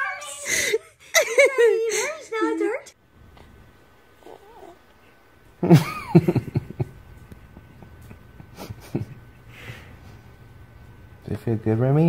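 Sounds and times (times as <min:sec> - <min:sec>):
newborn baby vocalizing: 0:04.2 - 0:04.9.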